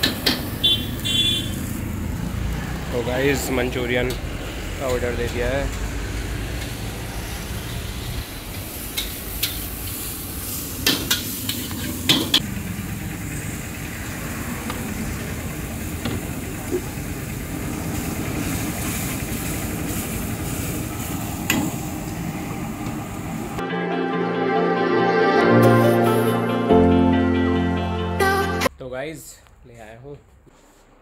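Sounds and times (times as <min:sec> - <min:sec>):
food sizzling in a wok: 0:07.2 - 0:12.4, 0:17.8 - 0:22.2.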